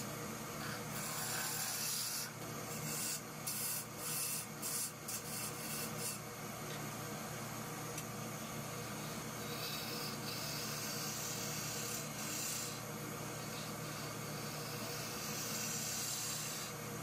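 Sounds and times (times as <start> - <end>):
turning tool cutting wood: 0.6 - 6.2, 8.9 - 16.8
wood lathe motor hum: 0.6 - 6.2, 8.4 - 17.0.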